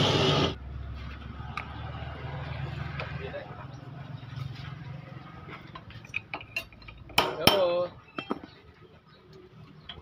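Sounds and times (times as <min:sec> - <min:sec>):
metal tools clinking and tapping: 0:05.5 - 0:08.7.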